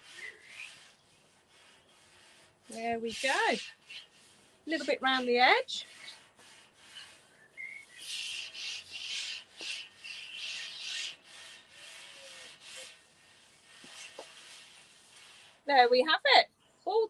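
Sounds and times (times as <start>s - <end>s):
scouring pad scrubbing a metal plate: 0.0s - 16.3s.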